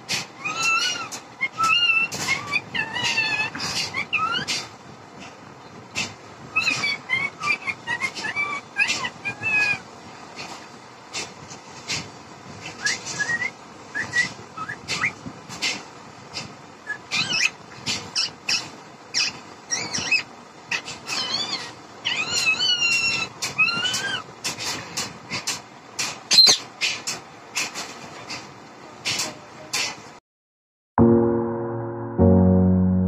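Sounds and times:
parakeet whistling: 0:12.8 - 0:15.2, 0:16.9 - 0:17.6, 0:18.2 - 0:24.2, 0:26.3 - 0:26.6.

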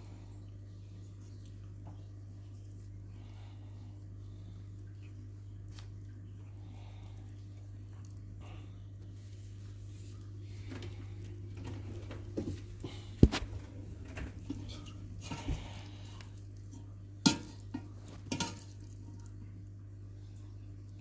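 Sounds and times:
clinks against metal bowl: 0:17.3 - 0:18.8.

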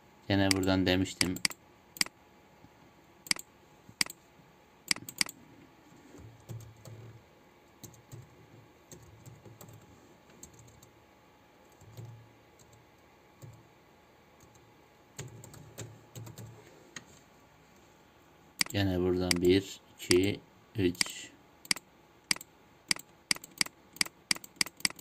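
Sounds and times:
computer keyboard typing: 0:00.4 - 0:02.1, 0:04.9 - 0:05.4, 0:15.2 - 0:16.5, 0:18.6 - 0:19.5, 0:20.9 - 0:25.0
sharp keyboard clicks: 0:00.4 - 0:02.1, 0:04.9 - 0:05.4, 0:18.6 - 0:19.5, 0:20.9 - 0:25.0.

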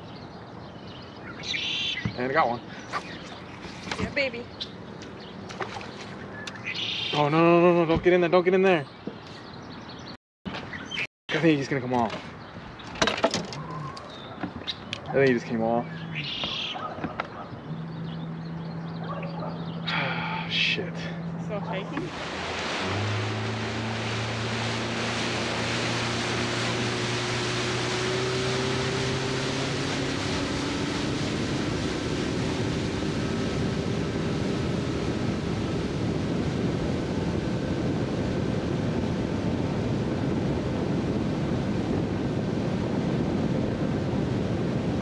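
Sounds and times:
boat motor humming: 0:00.0 - 0:08.2, 0:13.4 - 0:45.0
rushing water: 0:01.4 - 0:07.4, 0:20.5 - 0:36.4
wind buffeting microphone: 0:21.3 - 0:45.0.

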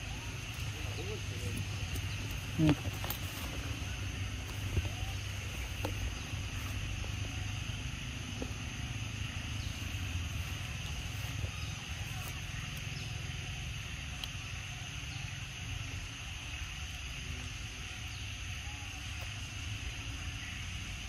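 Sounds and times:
constant high hiss: 0:00.0 - 0:21.0
faint ticks: 0:13.9 - 0:14.5.

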